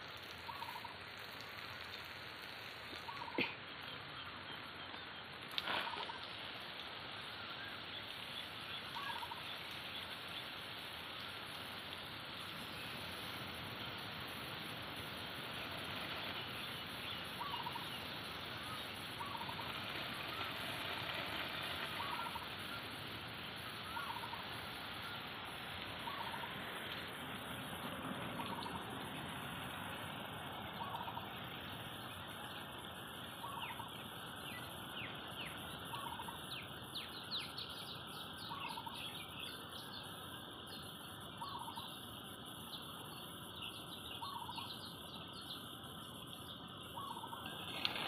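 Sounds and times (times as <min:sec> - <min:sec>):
water spray hissing on plants: 0:00.0 - 0:48.0
bird call: 0:00.5 - 0:01.0, 0:02.9 - 0:06.3, 0:08.7 - 0:09.6, 0:15.6 - 0:18.0, 0:18.7 - 0:22.8, 0:23.8 - 0:25.2, 0:26.0 - 0:26.5, 0:30.8 - 0:31.2, 0:33.4 - 0:40.0, 0:41.4 - 0:42.0, 0:43.6 - 0:45.6, 0:46.9 - 0:48.0.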